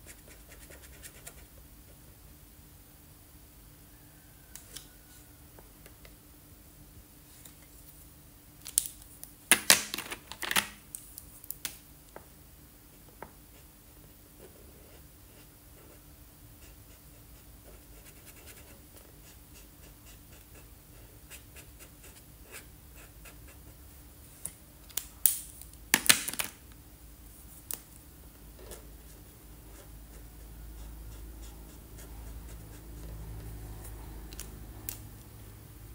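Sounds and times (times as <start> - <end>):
marker rubbing on paper: 28.6 - 33.1.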